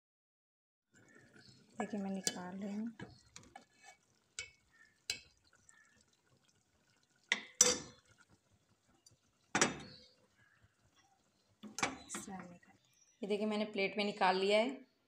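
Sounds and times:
spoon clinking on metal pot: 2.1s - 3.2s, 4.4s - 5.3s, 7.3s - 8.1s, 9.5s - 10.2s, 11.6s - 12.3s.

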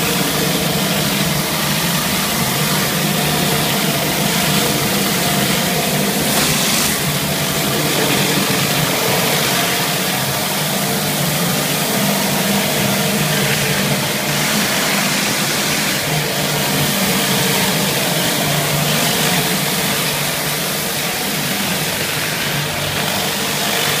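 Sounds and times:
pressure washer engine hum: 0.0s - 24.0s.

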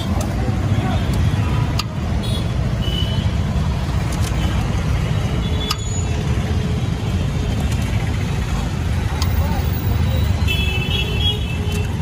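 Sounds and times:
street traffic rumble: 0.0s - 12.0s
faint sharp clicks: 9.1s - 9.4s.

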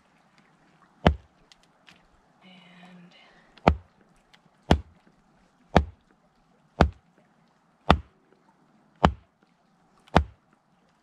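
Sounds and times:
machete chopping firewood: 1.0s - 1.3s, 3.6s - 3.9s, 4.7s - 5.0s, 5.7s - 6.0s, 6.8s - 7.0s, 7.9s - 8.1s, 9.0s - 9.2s, 10.1s - 10.4s.

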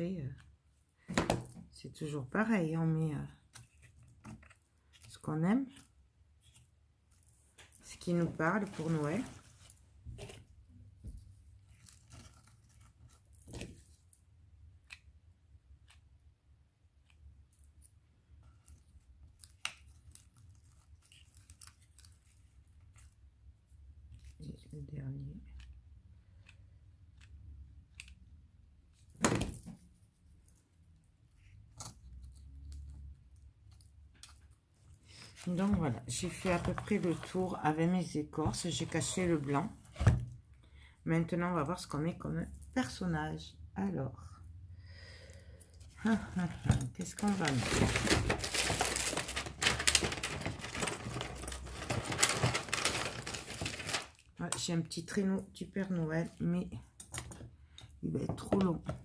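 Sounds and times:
rustling and crinkling materials: 2.8s - 15.1s, 17.4s - 28.2s, 31.4s - 40.4s, 45.8s - 54.7s.

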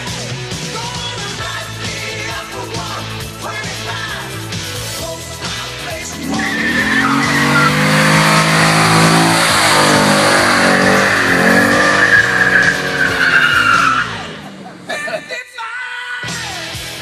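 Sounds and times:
car engine revving high: 6.1s - 14.9s
tyres squealing: 6.2s - 15.3s.

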